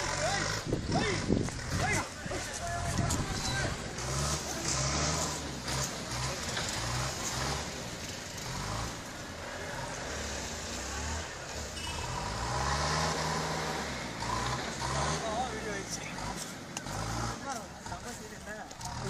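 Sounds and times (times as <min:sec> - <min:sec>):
vehicle engine revving: 0:00.0 - 0:19.0.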